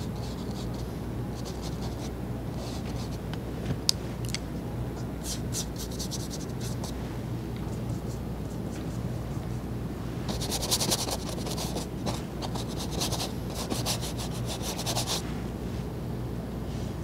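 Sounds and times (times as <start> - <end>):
paintbrush scrubbing canvas: 10.3 - 15.2.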